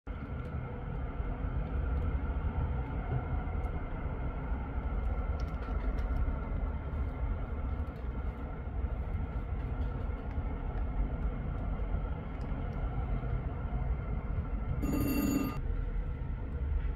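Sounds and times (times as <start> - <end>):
faint high hum: 12.0 - 16.9.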